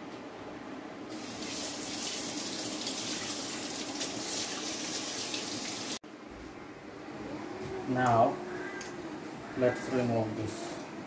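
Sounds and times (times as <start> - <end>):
tap water running and splashing: 1.1 - 6.0.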